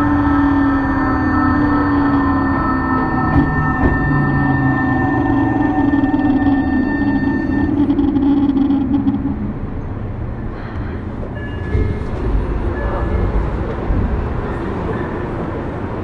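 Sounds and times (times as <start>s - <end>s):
faint high tones: 0.0s - 10.1s
electric train hum: 0.0s - 16.0s
train wheels rumbling on track: 0.0s - 16.0s.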